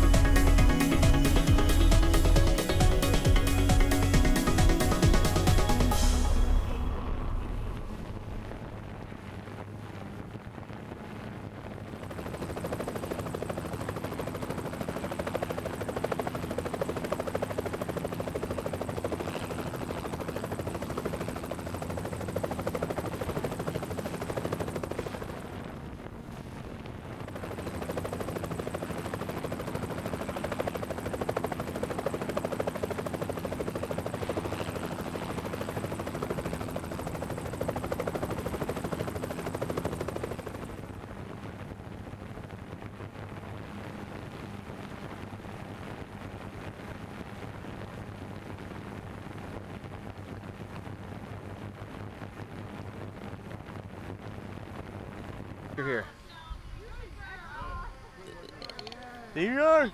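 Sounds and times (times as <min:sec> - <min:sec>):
drone propellers humming: 0:00.0 - 0:44.6.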